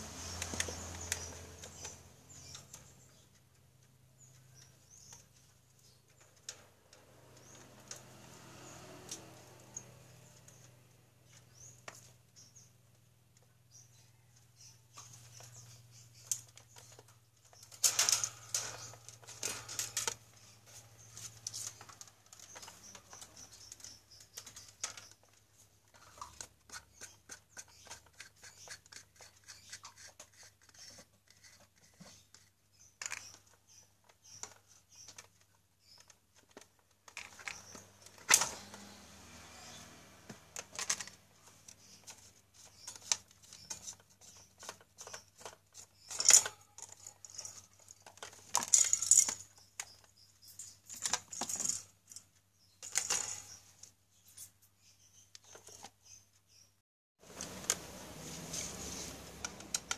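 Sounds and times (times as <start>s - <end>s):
wire fan guard rattling and clicking: 14.9s - 32.0s, 33.0s - 39.0s, 39.6s - 52.2s, 52.8s - 53.6s, 57.3s - 59.9s
plastic fan blade scraping and knocking: 16.3s - 49.6s, 57.2s - 59.9s.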